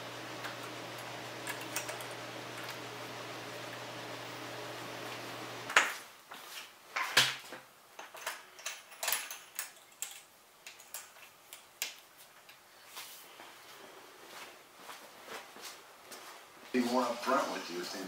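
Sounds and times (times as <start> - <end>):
metal fittings clicking and clanking: 8.0 - 12.0.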